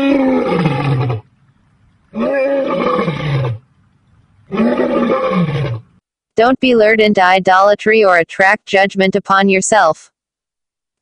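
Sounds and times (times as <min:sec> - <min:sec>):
deep animal roars: 0:00.0 - 0:01.3, 0:02.1 - 0:03.6, 0:04.5 - 0:05.9.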